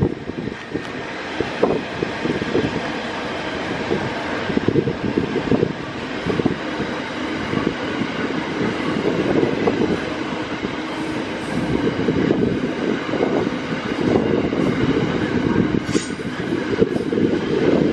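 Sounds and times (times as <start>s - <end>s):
train wagons rumbling on rails: 0.0s - 17.9s.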